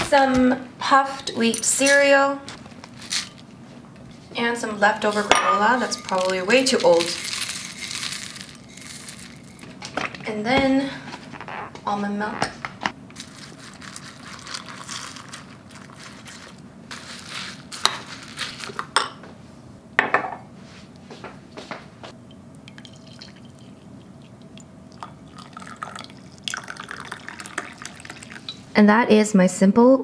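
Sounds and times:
coffee pouring into mug: 0:13.6 - 0:16.0, 0:22.6 - 0:28.6
milk pouring onto cereal: 0:22.7 - 0:28.4.

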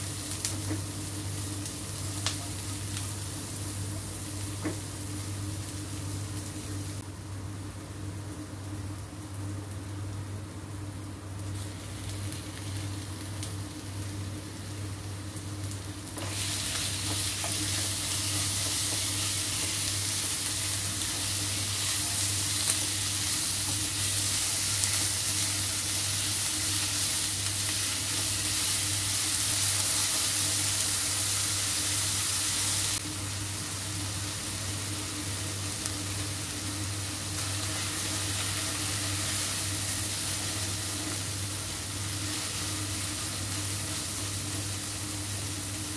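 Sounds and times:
meat sizzling in hot oil: 0:00.0 - 0:07.0, 0:11.4 - 0:45.9.

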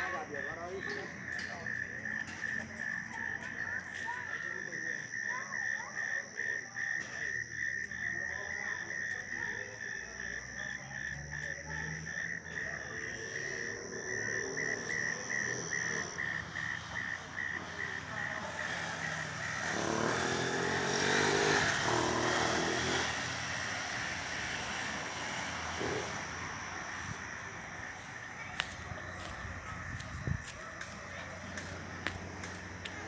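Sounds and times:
thin high steady tone: 0:00.0 - 0:20.0, 0:23.6 - 0:29.9
frog calling: 0:00.0 - 0:33.0.

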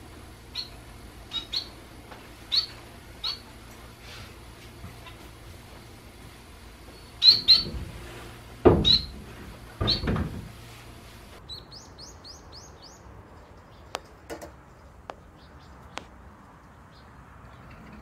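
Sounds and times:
sparrow chirping: 0:00.5 - 0:01.8, 0:02.5 - 0:03.6, 0:06.9 - 0:07.8, 0:08.8 - 0:09.2, 0:09.8 - 0:10.1, 0:11.4 - 0:16.0.

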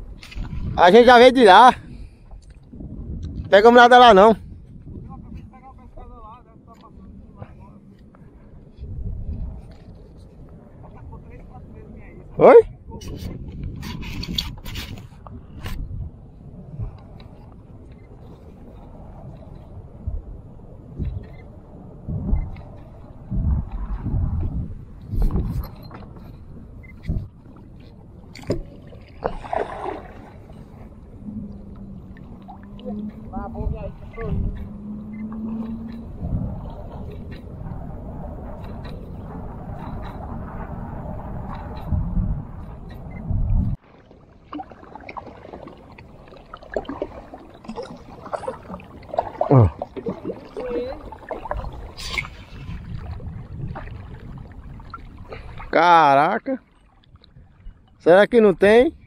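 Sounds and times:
water sloshing against hull: 0:00.0 - 0:58.1
water splash: 0:28.3 - 0:30.9, 0:43.8 - 0:55.8
low rumble: 0:29.2 - 0:55.8.

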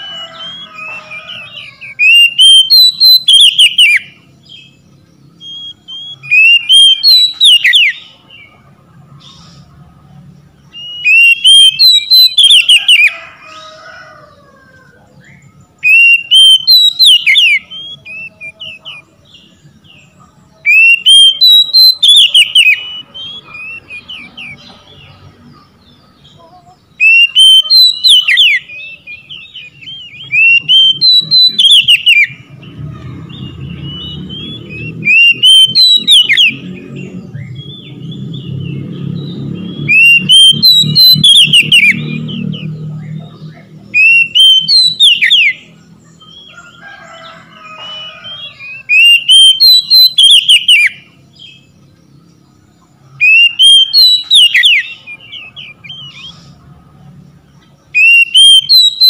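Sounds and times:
bird singing whistled phrases: 0:00.2 - 0:04.8, 0:05.4 - 0:08.1, 0:10.7 - 0:13.1, 0:15.8 - 0:19.0, 0:20.7 - 0:24.7, 0:27.0 - 0:32.4, 0:33.3 - 0:36.7, 0:39.2 - 0:42.8, 0:44.0 - 0:45.7, 0:48.0 - 0:51.6, 0:53.2 - 0:56.5, 0:58.0 - 0:59.0.

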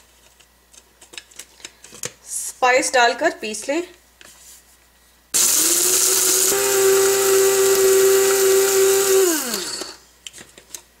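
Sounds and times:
spice grinder motor whining: 0:05.4 - 0:10.0.

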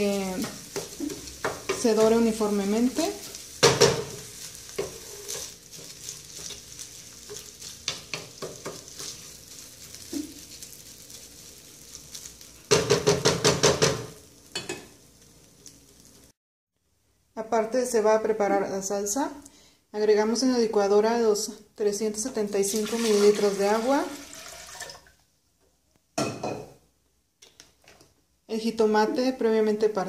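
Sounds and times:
light sizzle of oil: 0:00.0 - 0:16.4, 0:21.6 - 0:25.3
wooden spoon scraping rice in pan: 0:00.4 - 0:12.5.

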